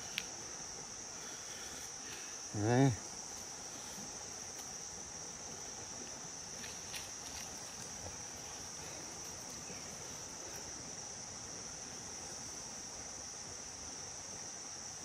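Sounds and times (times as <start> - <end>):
faint ticks: 0.0 - 0.4
insects chirring: 0.0 - 15.0.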